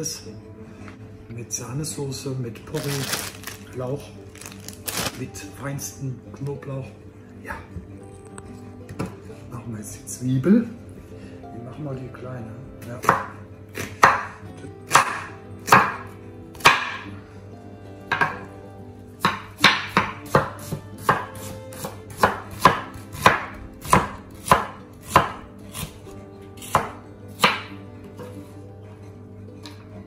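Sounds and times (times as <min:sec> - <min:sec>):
knife chopping on wooden board: 0:13.0 - 0:14.3, 0:14.9 - 0:17.1, 0:18.1 - 0:18.5, 0:19.2 - 0:26.0, 0:26.6 - 0:27.8.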